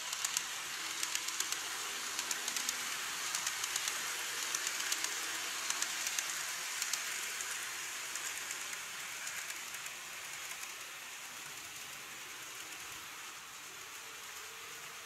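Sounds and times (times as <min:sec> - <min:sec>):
wheels clicking over track joints: 0:00.0 - 0:07.2
model train wheels and motor hiss: 0:00.0 - 0:15.0.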